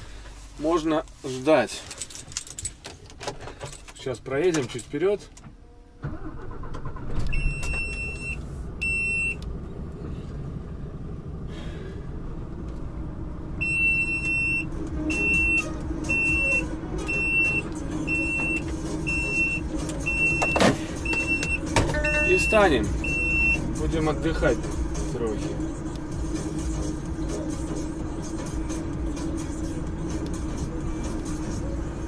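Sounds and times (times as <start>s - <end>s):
diesel engine rumbling: 0.0s - 32.0s
electronic warning beeps: 13.6s - 23.6s.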